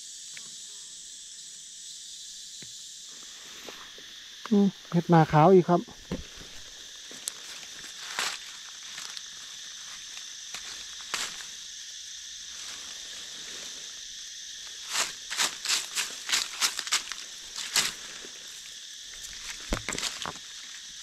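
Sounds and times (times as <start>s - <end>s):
high-pitched insect chorus: 0.0s - 21.0s
crackling rustles in leaf litter: 6.3s - 21.0s.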